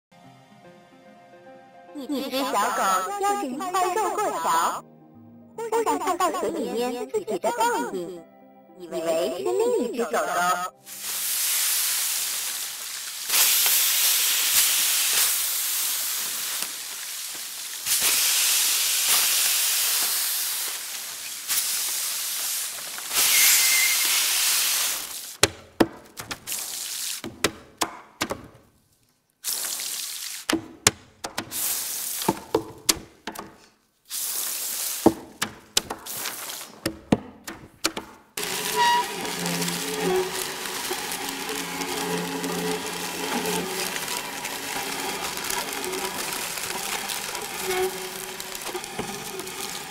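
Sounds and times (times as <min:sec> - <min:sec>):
crumpled paper rubbing on tables: 0:10.9 - 0:25.4, 0:34.1 - 0:36.9, 0:38.4 - 0:49.9.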